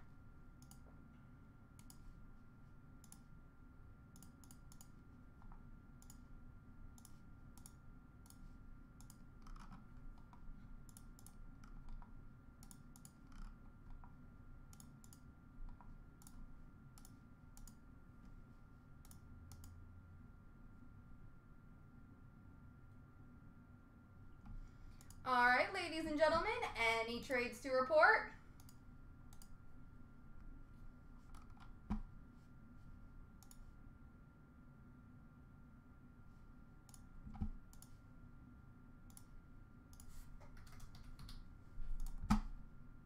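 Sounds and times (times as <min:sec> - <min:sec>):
low steady hum: 0:00.0 - 0:43.0
typing on keyboard: 0:09.0 - 0:14.1, 0:40.0 - 0:41.4.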